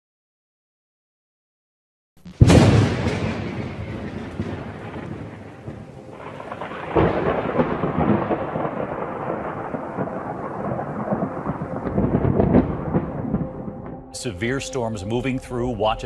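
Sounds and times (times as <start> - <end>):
thunder rumbling: 2.3 - 16.0
steady rain: 2.6 - 13.7.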